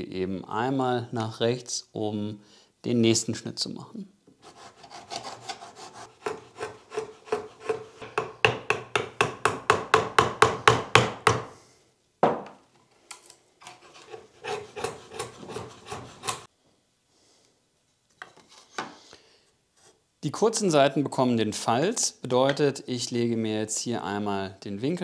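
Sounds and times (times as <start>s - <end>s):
handsaw cutting wood: 4.5s - 8.1s, 13.8s - 16.5s
knock: 12.2s - 12.6s.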